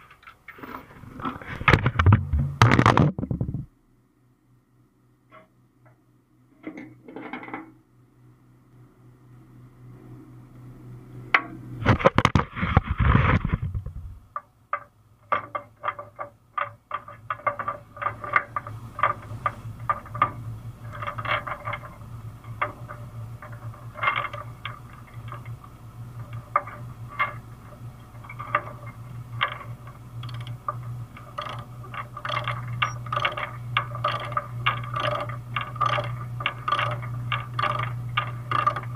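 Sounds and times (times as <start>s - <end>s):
steady low hum: 0.0s - 38.9s
ratchet clicks: 28.2s - 38.9s.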